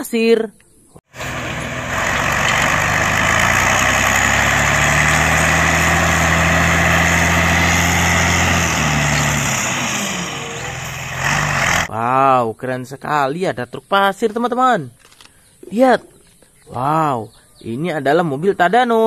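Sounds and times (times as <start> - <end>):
dump truck diesel engine running: 1.1 - 11.9.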